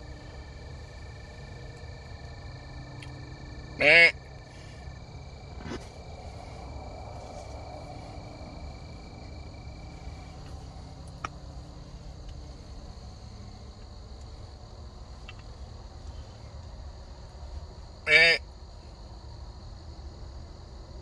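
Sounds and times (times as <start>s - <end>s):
low rumble: 0.0s - 13.2s
insects trilling: 0.0s - 21.0s.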